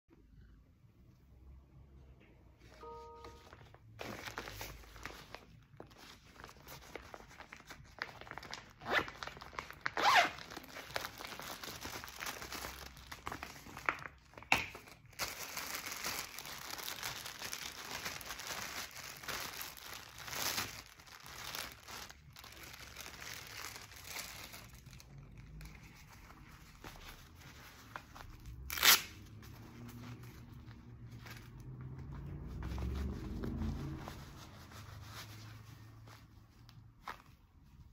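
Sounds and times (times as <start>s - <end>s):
plastic packaging crinkling: 2.8s - 32.2s.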